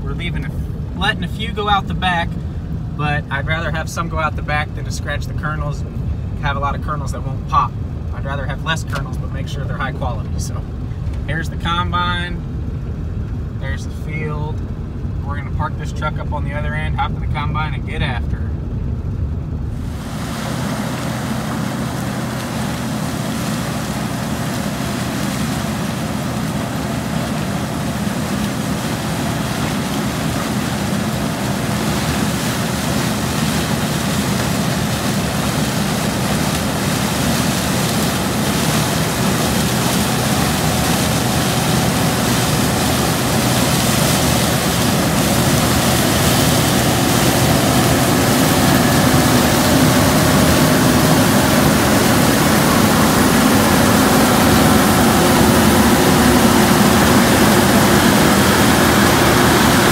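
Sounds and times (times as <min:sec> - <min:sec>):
combine harvester engine hum: 0:00.0 - 0:59.9
rushing of threshing machinery: 0:19.7 - 0:59.9.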